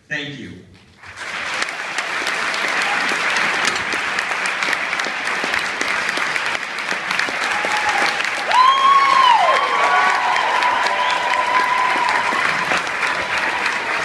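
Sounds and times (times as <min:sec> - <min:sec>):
audience applauding: 0:01.0 - 0:14.0
high call from crowd: 0:07.3 - 0:14.0.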